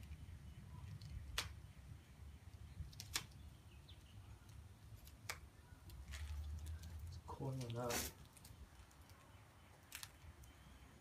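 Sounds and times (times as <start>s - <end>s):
duct tape clicks and snaps: 0.9s - 1.6s, 2.8s - 3.4s, 4.4s - 7.0s, 9.8s - 10.5s.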